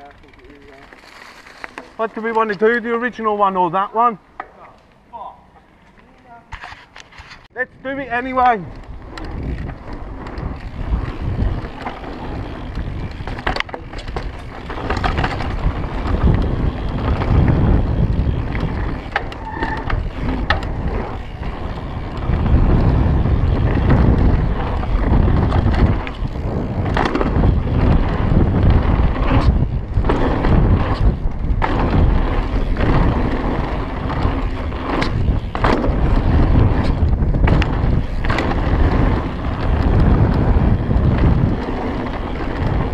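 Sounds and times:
bike knocks and rattles: 0.0s - 2.8s, 8.3s - 42.9s
wind buffeting microphone: 7.6s - 42.9s
tyres rolling over dirt: 8.6s - 42.9s.

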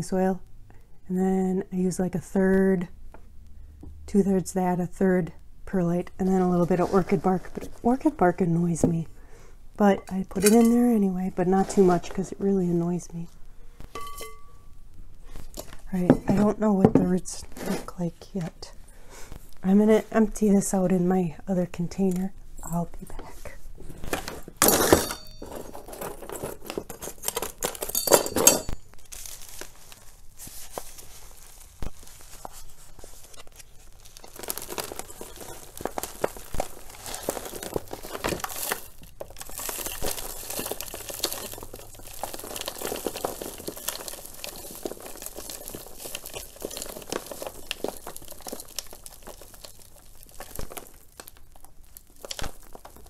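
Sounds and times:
plastic pot crinkling: 6.0s - 9.1s, 9.8s - 14.5s, 15.2s - 20.7s, 21.8s - 53.0s
soil rustling and falling: 23.8s - 53.0s.

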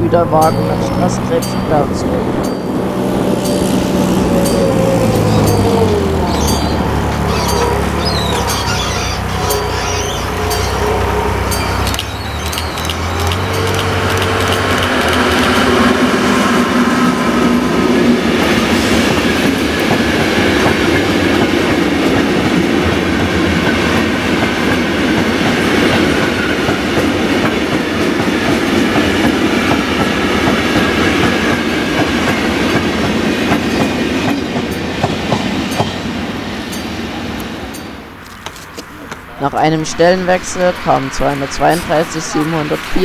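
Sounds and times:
wheels clacking over rail joints: 0.0s - 16.6s
locomotive engine drone: 0.0s - 43.0s
train wagons rumbling: 0.0s - 43.0s.

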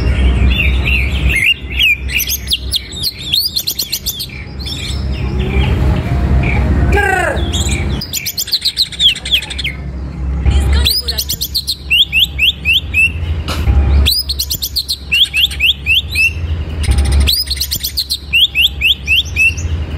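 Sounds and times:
bird singing: 0.0s - 19.9s.

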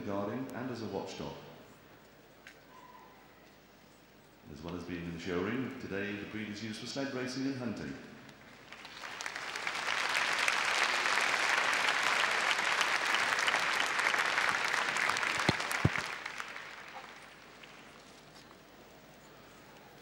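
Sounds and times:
audience applause: 8.6s - 17.8s
sharp claps: 8.7s - 17.7s.

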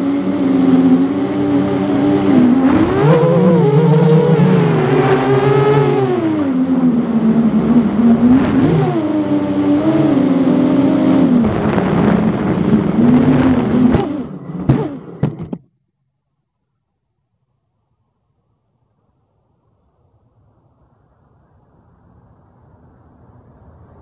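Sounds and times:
drone motors whining: 0.0s - 15.6s.

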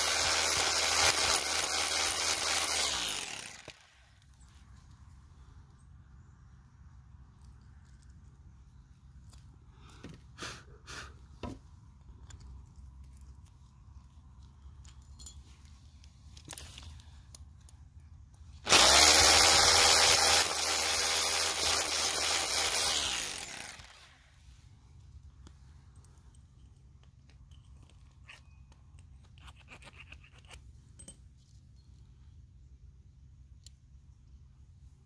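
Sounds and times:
hammer drill boring into wall: 0.0s - 4.0s, 18.6s - 24.2s.

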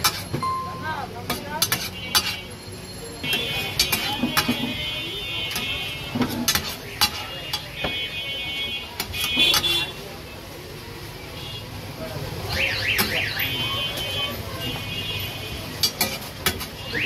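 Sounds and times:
metal utensils scraping on griddle: 0.0s - 0.4s, 1.2s - 7.8s, 15.6s - 17.0s.

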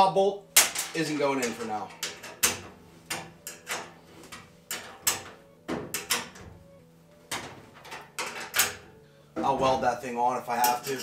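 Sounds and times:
metallic clicks and knocks of tools: 0.6s - 6.4s.

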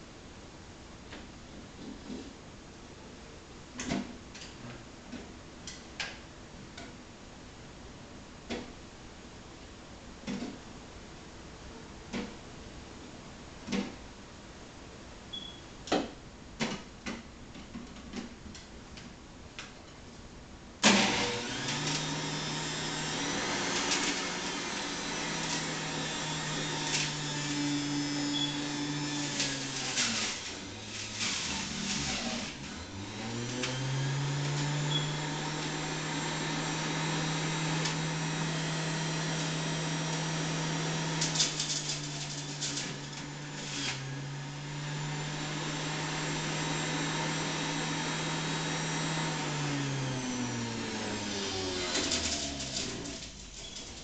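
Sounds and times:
juicer motor running: 20.8s - 53.4s.

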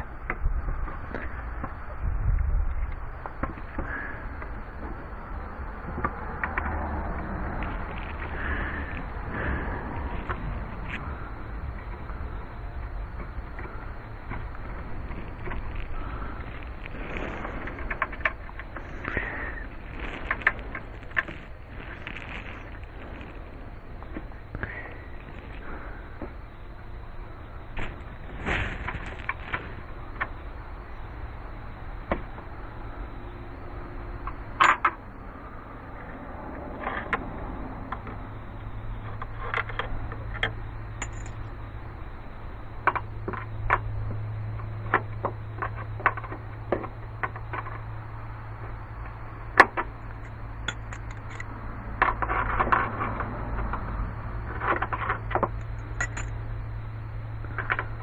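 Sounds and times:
steady low hum: 0.0s - 58.0s
hand tools clicking and clinking: 41.0s - 41.4s, 50.2s - 51.5s, 55.6s - 56.3s.

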